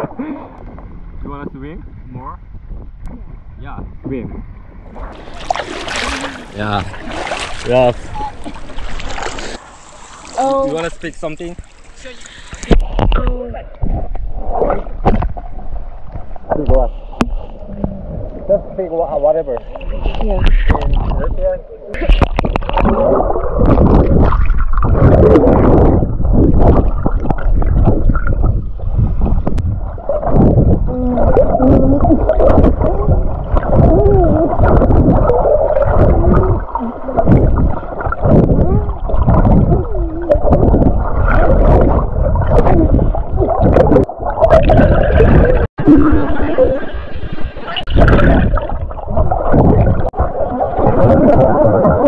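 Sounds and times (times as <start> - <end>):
muffled river water gurgling: 0.0 - 52.0
muffled wavering tones: 29.9 - 52.0.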